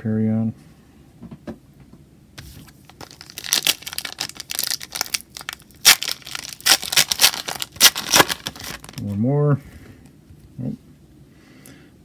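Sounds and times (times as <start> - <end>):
foil wrapper crinkling: 2.5 - 9.2
foil wrapper ripping: 2.7 - 9.1.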